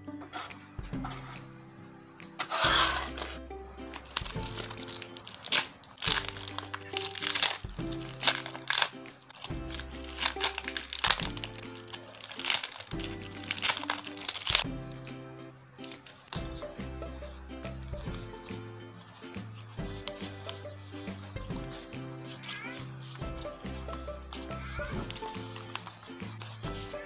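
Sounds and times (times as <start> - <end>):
plastic packaging crinkling: 2.4 - 14.6, 15.8 - 27.0
background music with bass: 14.6 - 15.6, 16.4 - 18.9, 23.2 - 25.5.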